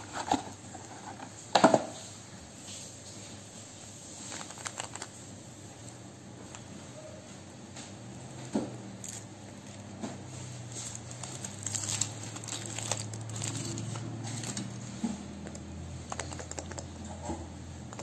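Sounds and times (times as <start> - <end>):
foil wrapper crinkling and tearing: 4.1 - 6.0, 8.9 - 16.8.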